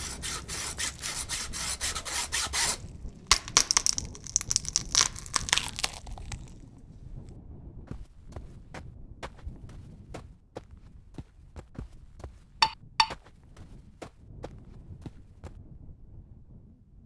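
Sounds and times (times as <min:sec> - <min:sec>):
cartoon saw sawing strokes: 0:00.0 - 0:02.8.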